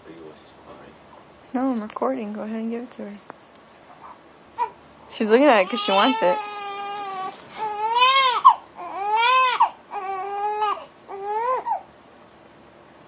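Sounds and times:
baby crying: 0:04.6 - 0:04.8, 0:05.6 - 0:11.9.

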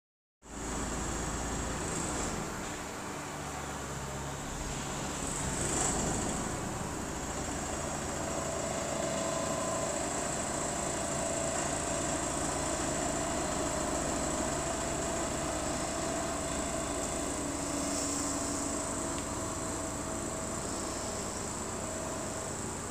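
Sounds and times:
soil compactor engine drone: 0:00.5 - 0:22.9
high-pitched buzz: 0:12.8 - 0:22.9.

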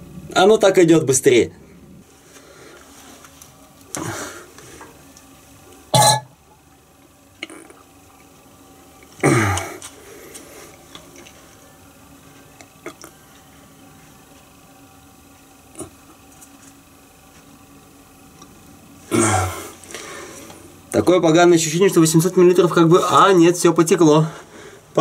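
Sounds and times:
man grunting with strain: 0:09.2 - 0:09.8, 0:19.1 - 0:19.8.

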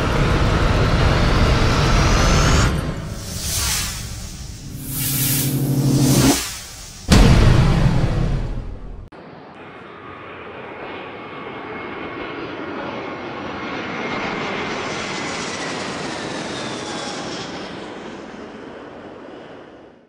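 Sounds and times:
high engine whine falling in pitch: 0:00.0 - 0:12.2
jet airplane flyby: 0:00.0 - 0:20.0.

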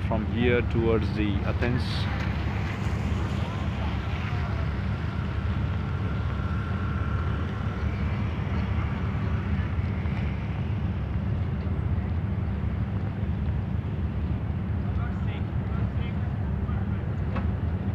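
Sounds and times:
faint voices: 0:00.0 - 0:13.7
boat engine rumbling: 0:00.0 - 0:15.6.

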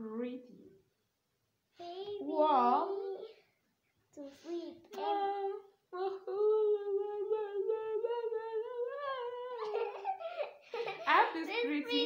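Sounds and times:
woman singing: 0:05.0 - 0:09.8.

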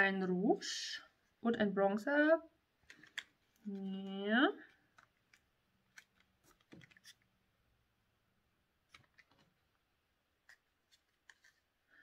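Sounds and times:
faint clicks and taps of handling: 0:02.8 - 0:07.2.

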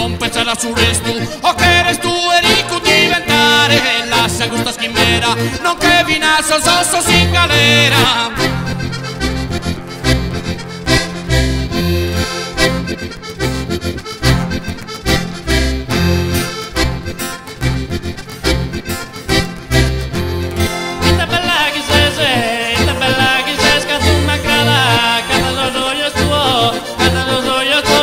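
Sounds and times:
man singing: 0:00.0 - 0:09.0, 0:20.9 - 0:28.0
accordion: 0:00.0 - 0:28.0
bass line: 0:00.0 - 0:28.0
guitar: 0:00.0 - 0:28.0.

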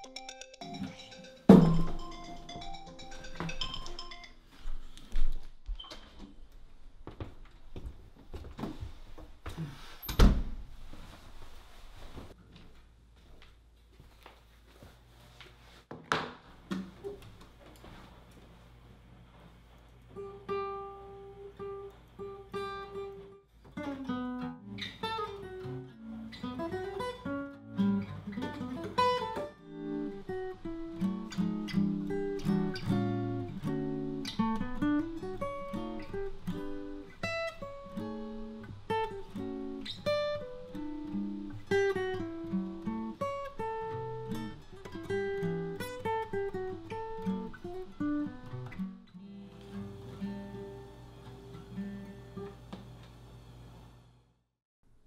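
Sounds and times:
acoustic guitar melody: 0:00.0 - 0:05.1, 0:20.1 - 0:52.9.

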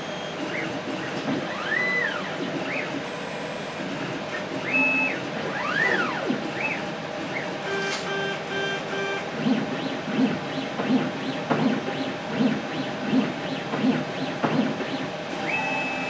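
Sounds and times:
robot motors whirring: 0:00.4 - 0:03.0, 0:03.8 - 0:08.2.

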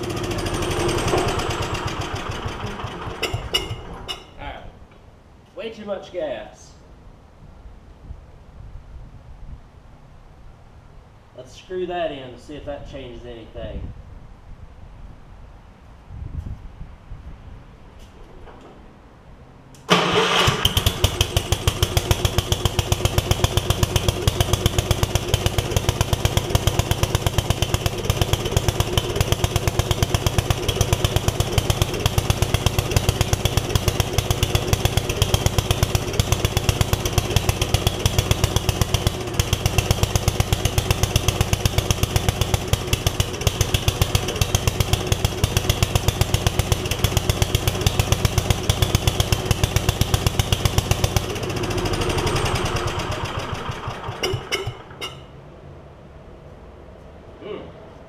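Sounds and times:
engine running: 0:00.0 - 0:05.0, 0:19.6 - 0:56.8
person talking: 0:04.4 - 0:04.8, 0:05.5 - 0:06.8, 0:57.4 - 0:57.8.

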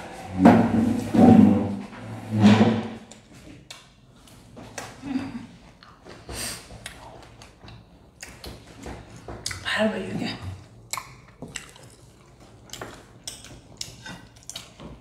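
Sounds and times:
mouth clicks and smacks: 0:09.4 - 0:09.7, 0:10.8 - 0:15.0.

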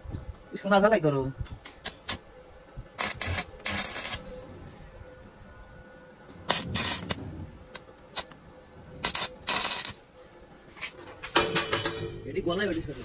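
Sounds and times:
welding arc crackling and sizzling: 0:03.0 - 0:05.1, 0:06.3 - 0:08.4, 0:09.0 - 0:11.0.

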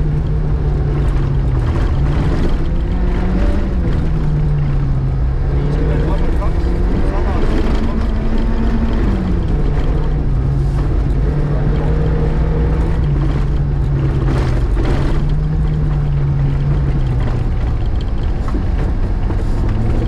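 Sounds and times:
rally car engine at speed: 0:00.0 - 0:20.0.

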